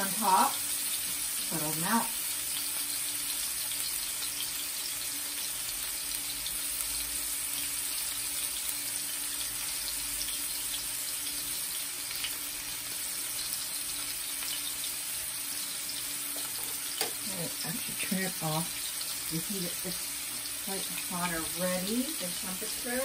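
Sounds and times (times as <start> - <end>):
patties sizzling in frying pan: 0.0 - 23.0.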